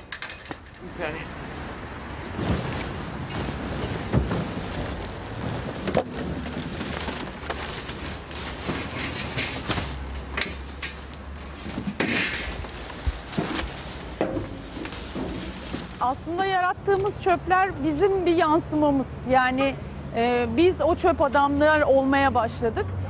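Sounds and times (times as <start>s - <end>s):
paper and plastic rustling: 2.2s - 17.2s.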